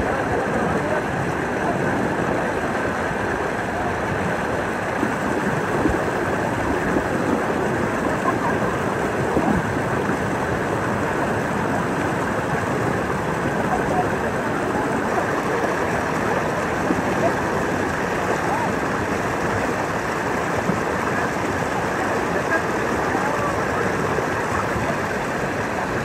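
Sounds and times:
river water pouring over waterfalls: 0.0 - 26.0.

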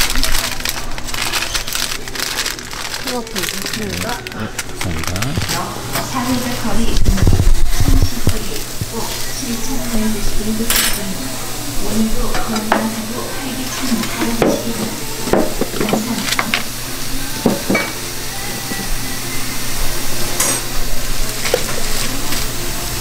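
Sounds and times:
sizzling hiss: 0.0 - 23.0
metal utensils scraping pans: 12.2 - 13.0, 13.7 - 16.7, 20.3 - 20.7.

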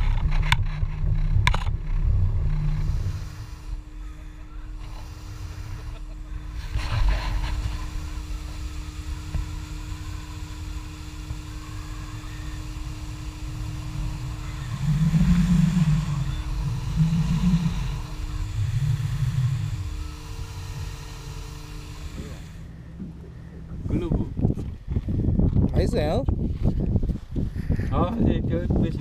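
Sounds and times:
outboard motor droning: 0.0 - 24.9.

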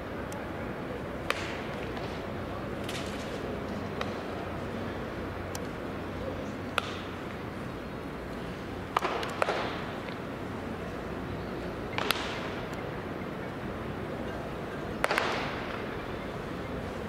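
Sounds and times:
steady background noise: 0.0 - 17.0
baseball bat cracks: 6.7 - 7.2, 12.0 - 12.6, 15.0 - 15.8.

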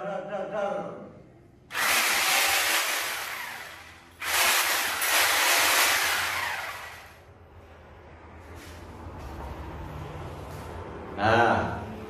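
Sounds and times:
angle grinder running in bursts: 1.7 - 7.2.

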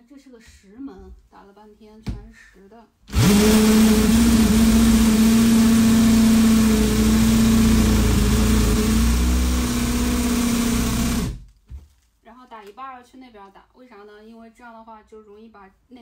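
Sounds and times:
cordless drill motor hum: 3.1 - 11.5
drill bit boring into wood: 3.1 - 11.5.

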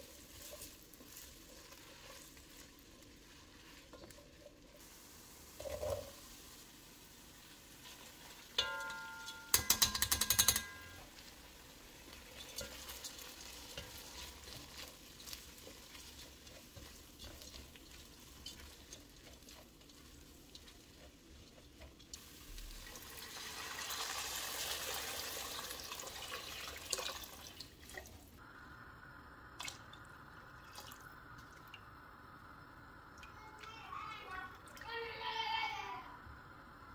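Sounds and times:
spatula stirring with scraping clicks: 0.0 - 4.8, 7.8 - 22.3
water pouring into a pot: 0.0 - 8.8, 9.5 - 20.7, 22.0 - 28.4, 29.5 - 31.9.

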